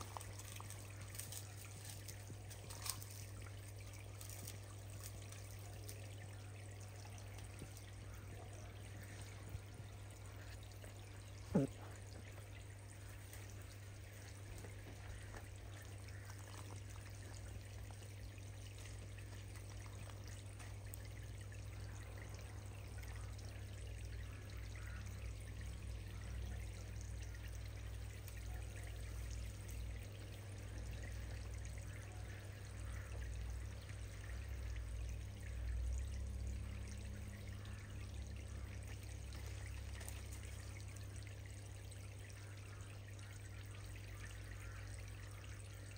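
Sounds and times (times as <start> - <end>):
low steady hum: 0.0 - 45.9
water trickling into pond: 0.0 - 45.9.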